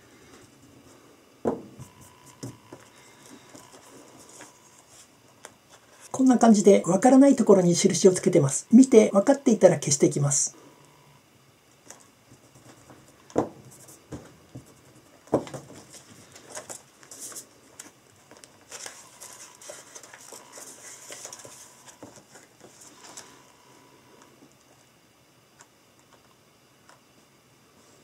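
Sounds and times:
book pages turning: 0:01.8 - 0:06.1, 0:15.7 - 0:23.4
paper rustling: 0:11.8 - 0:23.4.

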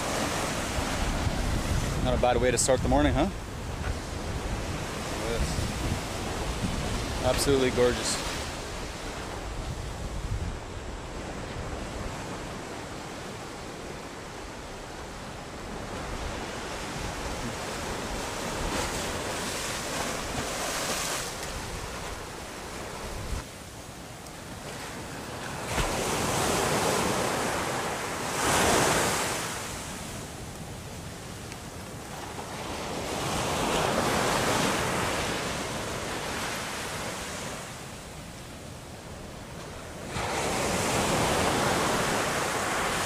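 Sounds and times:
wind rumbling on microphone: 0:00.0 - 0:23.4
surf washing onto beach: 0:00.0 - 0:37.9, 0:39.2 - 0:43.0.

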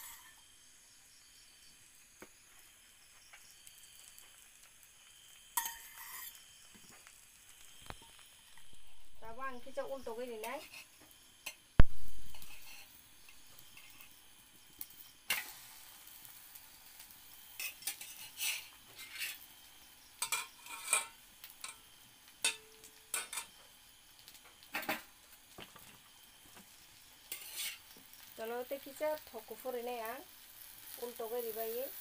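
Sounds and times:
omelette sizzling in oil: 0:00.0 - 0:32.0
metal spatula scraping pan: 0:05.6 - 0:06.4, 0:12.3 - 0:12.9, 0:17.6 - 0:19.4, 0:20.2 - 0:21.8, 0:27.3 - 0:27.9.

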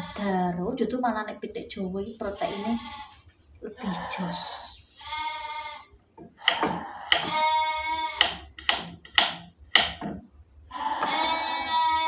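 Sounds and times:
goat bleating: 0:00.0 - 0:00.4, 0:02.3 - 0:03.2, 0:03.8 - 0:05.9, 0:06.8 - 0:08.3, 0:10.7 - 0:12.0
knife knocking on wooden board: 0:06.2 - 0:07.3, 0:08.2 - 0:10.3.

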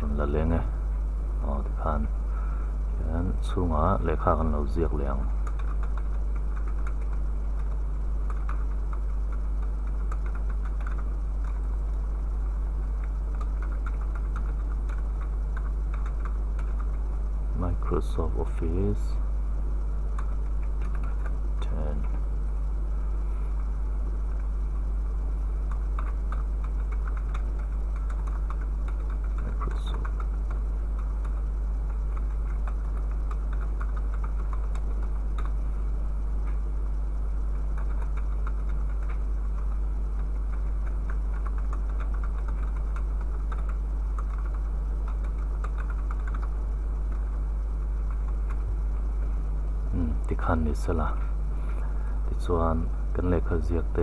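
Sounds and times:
low hum: 0:00.0 - 0:54.0
keyboard typing: 0:05.3 - 0:11.6, 0:13.0 - 0:17.0, 0:20.2 - 0:21.4, 0:25.7 - 0:35.7, 0:37.5 - 0:47.4.

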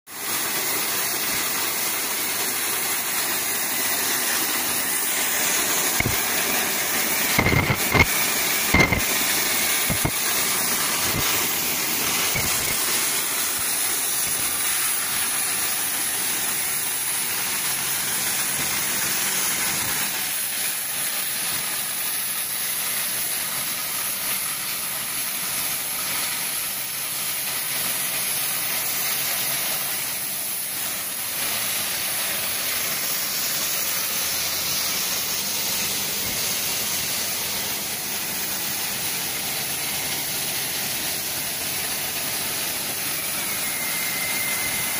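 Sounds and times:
cutting torches hissing: 0:00.4 - 0:44.9.

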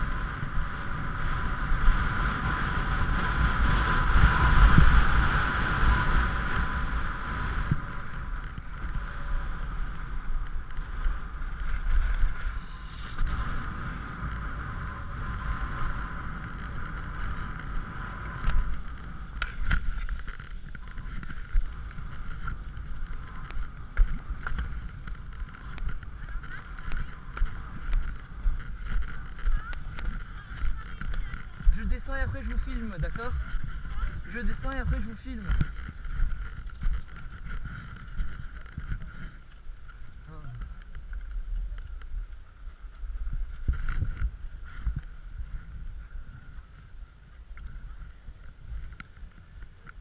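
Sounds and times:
skis sliding over snow: 0:00.0 - 0:50.0
wind rumble on microphone: 0:00.0 - 0:50.0.

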